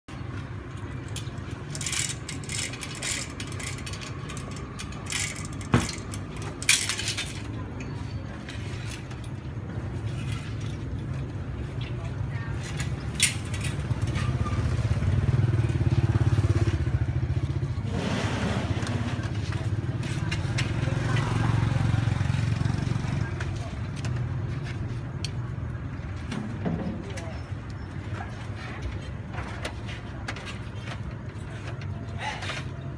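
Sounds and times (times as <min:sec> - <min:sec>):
traffic engine hum: 0:00.1 - 0:32.9.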